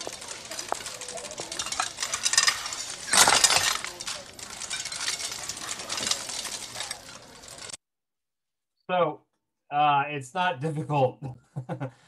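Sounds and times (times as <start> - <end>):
metal bowls and spoons clattering: 0.0 - 7.8.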